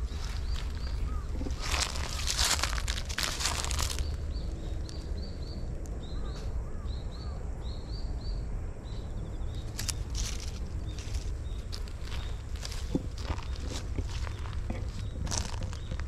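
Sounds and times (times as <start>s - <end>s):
dry leaves rustling and crunching: 0.0s - 5.0s, 9.6s - 16.0s
small birds chirping: 0.0s - 16.0s
steady low rumble: 0.0s - 16.0s.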